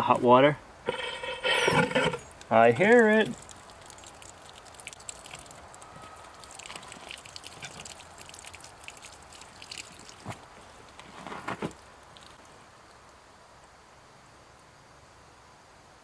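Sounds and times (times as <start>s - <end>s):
water trickling and dripping: 2.3s - 11.1s, 11.7s - 13.7s.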